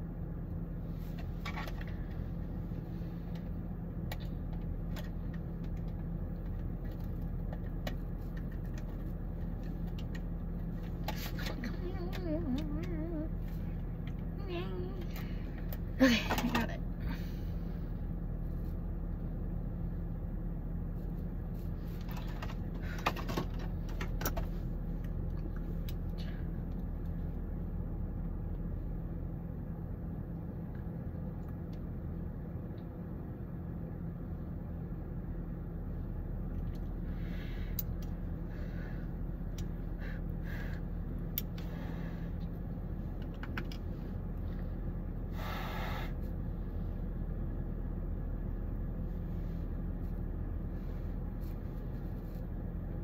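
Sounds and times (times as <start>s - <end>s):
car engine humming: 0.0s - 53.0s
small clicks and rustles: 1.0s - 14.3s, 21.0s - 27.2s.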